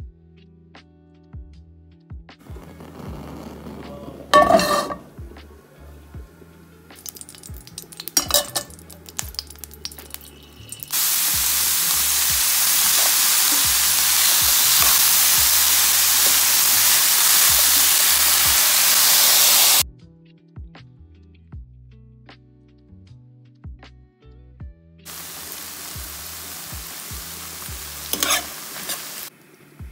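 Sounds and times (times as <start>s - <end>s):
vegetables sizzling in hot oil: 2.6s - 5.1s, 7.0s - 19.8s, 25.1s - 29.3s.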